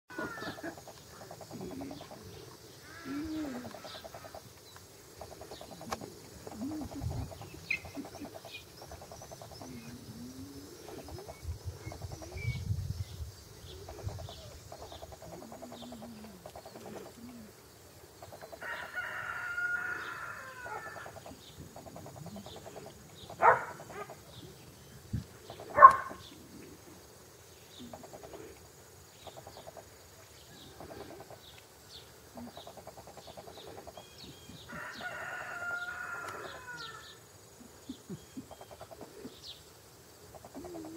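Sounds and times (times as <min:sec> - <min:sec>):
rooster crowing: 0:18.6 - 0:21.1, 0:34.7 - 0:37.2.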